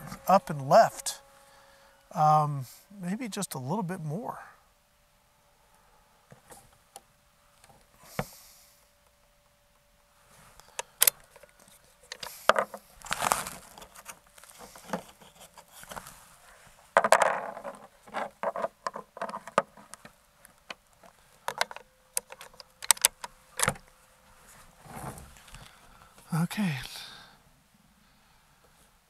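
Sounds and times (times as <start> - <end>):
clicks knocks and rattling scrapes: 11.0 - 16.2, 16.9 - 23.8.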